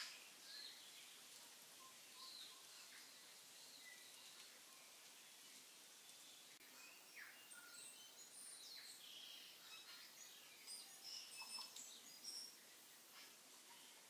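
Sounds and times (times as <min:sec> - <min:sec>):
faint birdsong: 0:00.0 - 0:14.0
low hiss: 0:00.0 - 0:14.0.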